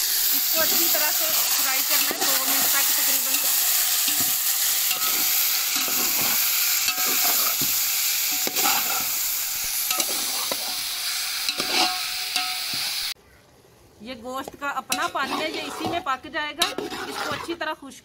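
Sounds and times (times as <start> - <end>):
chicken sizzling in oil: 0.0 - 13.2
metal spoon scraping a pot: 0.6 - 7.7, 9.9 - 12.7, 14.9 - 17.7.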